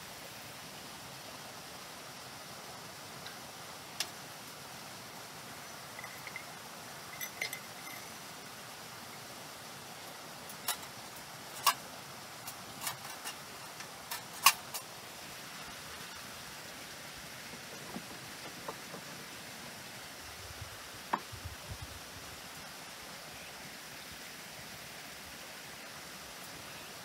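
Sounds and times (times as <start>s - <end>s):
stream rushing: 0.0s - 27.0s
cups and metal gear clinking on wood: 5.9s - 8.2s.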